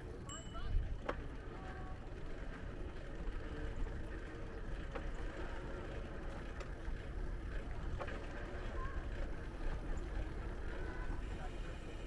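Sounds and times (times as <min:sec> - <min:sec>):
wind and road noise: 0:00.0 - 0:12.0
faint voices: 0:07.5 - 0:12.0.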